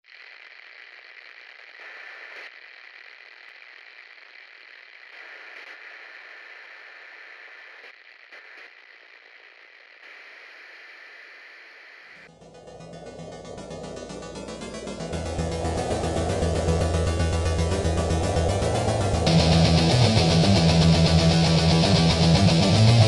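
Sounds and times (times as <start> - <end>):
steady hiss: 0.1 - 12.3.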